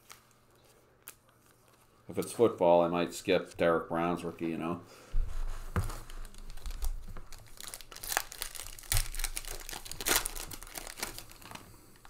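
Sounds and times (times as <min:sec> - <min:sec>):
wrapper tearing and crinkling: 0:05.9 - 0:12.0.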